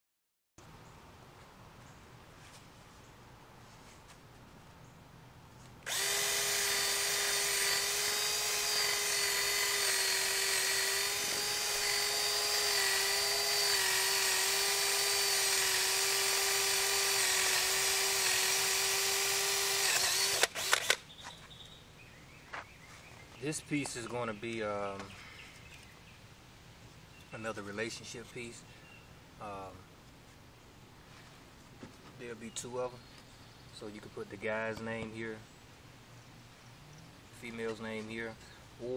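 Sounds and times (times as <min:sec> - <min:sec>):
cordless drill boring into wood: 0:05.8 - 0:21.0
sharp clicks: 0:19.8 - 0:21.1.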